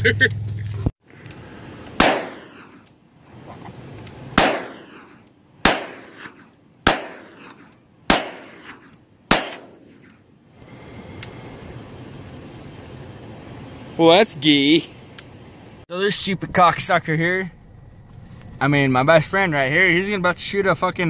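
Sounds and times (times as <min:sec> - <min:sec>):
revolver shots echoing: 0:02.0 - 0:02.8, 0:04.3 - 0:10.1.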